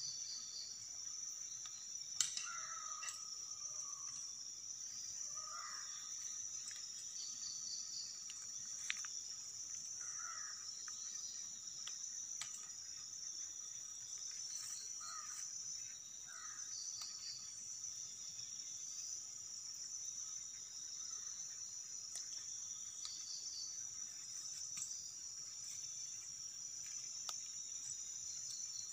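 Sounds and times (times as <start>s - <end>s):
high insect trill: 0.0s - 28.9s.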